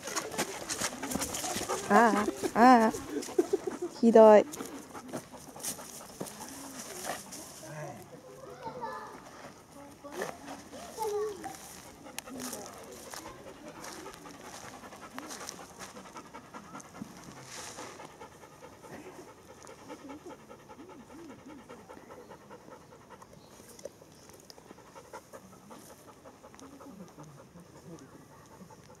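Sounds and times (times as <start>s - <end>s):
dog panting: 0.0s - 8.3s, 9.0s - 29.0s.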